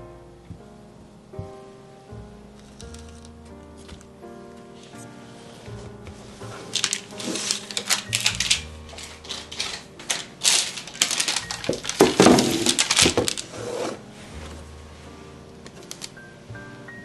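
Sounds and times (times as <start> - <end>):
soft music: 0.0 - 17.0
parchment paper crinkling: 2.6 - 14.7, 15.6 - 16.2.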